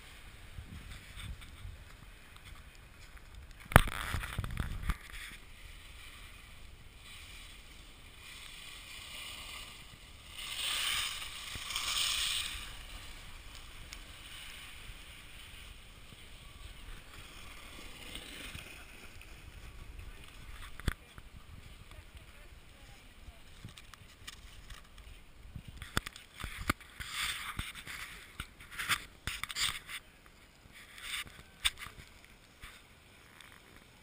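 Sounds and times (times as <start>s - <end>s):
rough rumbling: 0.0s - 25.9s
sliding over icy slush: 3.9s - 20.5s.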